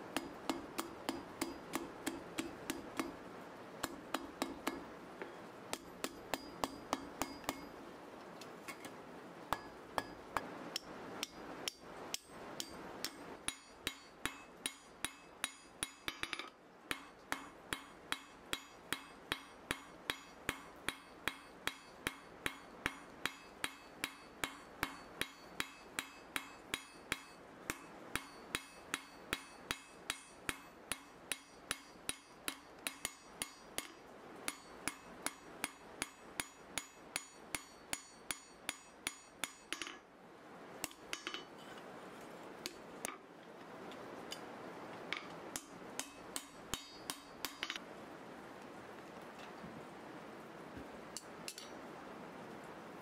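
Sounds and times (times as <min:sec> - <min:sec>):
hammer striking steel on anvil: 0:00.1 - 0:03.2, 0:03.8 - 0:04.9, 0:05.7 - 0:07.7, 0:09.5 - 0:40.0, 0:40.8 - 0:41.5, 0:45.1 - 0:47.8, 0:51.5 - 0:51.7.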